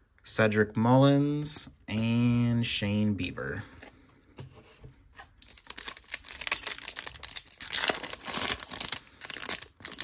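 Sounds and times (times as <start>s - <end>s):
wrapper crinkling and tearing: 5.2s - 10.0s.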